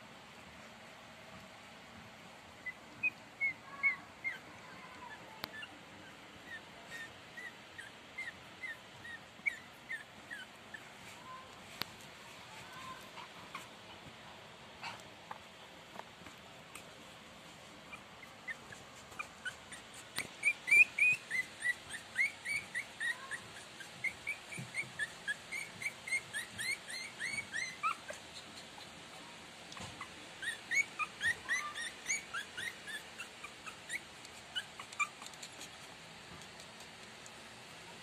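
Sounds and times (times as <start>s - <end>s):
puppies whimpering squeaks: 2.6s - 10.8s, 17.9s - 28.9s, 29.9s - 35.8s.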